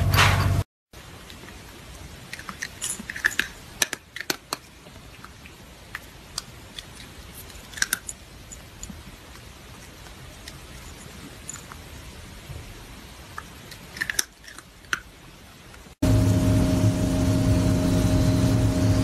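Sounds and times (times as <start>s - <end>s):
loud hum: 16.0s - 19.0s.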